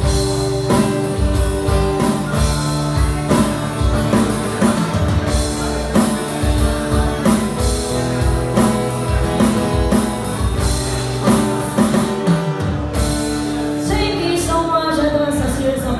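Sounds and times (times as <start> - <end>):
percussion beat: 0.0 - 14.0
strummed acoustic guitar: 0.0 - 15.8
woman singing: 13.8 - 15.9.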